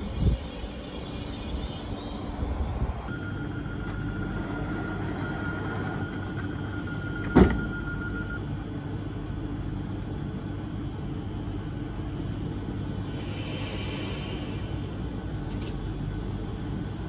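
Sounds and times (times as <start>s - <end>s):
steady high warning tone: 0.0s - 17.0s
train hum: 0.0s - 17.0s
train doors shutting bang: 7.2s - 7.8s.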